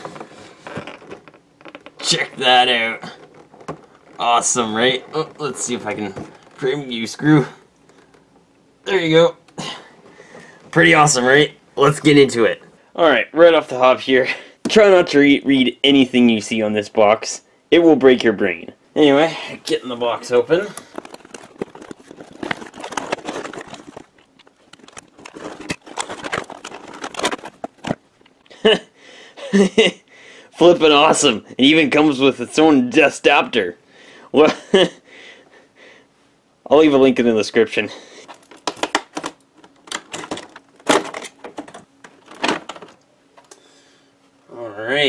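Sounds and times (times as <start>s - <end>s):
packaging rustling and scraping: 0.0s - 6.9s, 19.7s - 28.4s, 38.1s - 43.0s.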